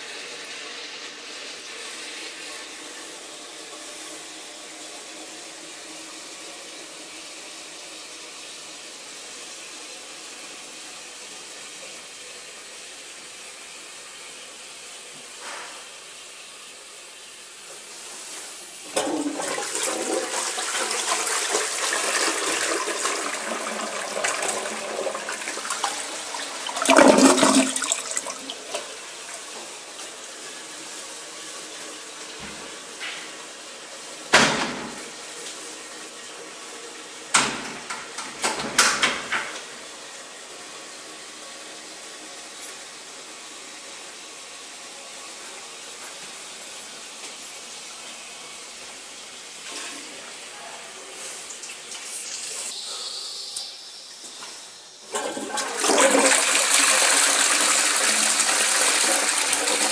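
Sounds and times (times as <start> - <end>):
toilet flushing: 0.0 - 59.9
refill water running: 16.1 - 37.2, 54.7 - 59.9.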